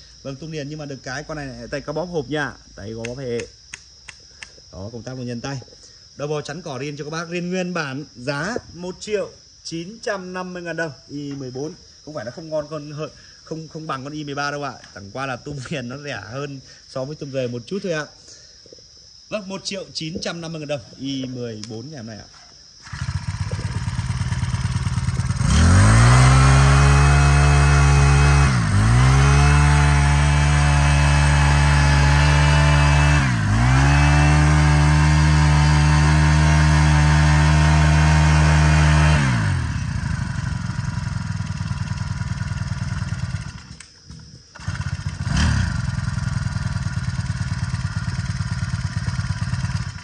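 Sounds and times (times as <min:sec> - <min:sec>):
brush cutter engine revving: 0:22.8 - 0:50.0.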